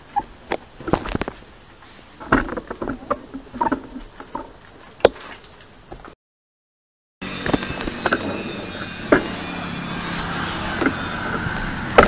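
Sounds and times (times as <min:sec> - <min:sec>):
bicycles knocking and clattering: 0:07.2 - 0:12.0
rush of riding noise: 0:07.2 - 0:12.0.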